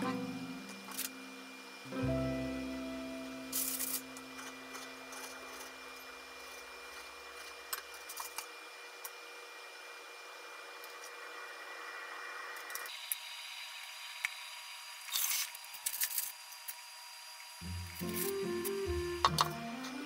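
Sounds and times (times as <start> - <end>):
background music: 0.0 - 5.1, 17.6 - 20.0.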